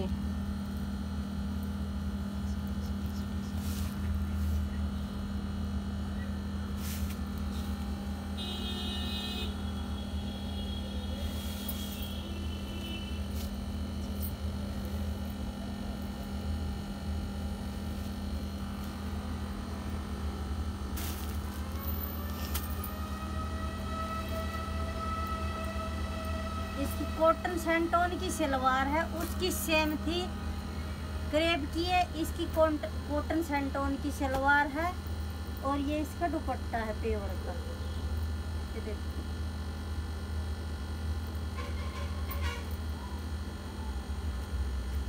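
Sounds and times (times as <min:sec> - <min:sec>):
low hum: 0:00.0 - 0:36.2
rising whine: 0:17.1 - 0:32.6
fabric rustling: 0:21.0 - 0:22.9.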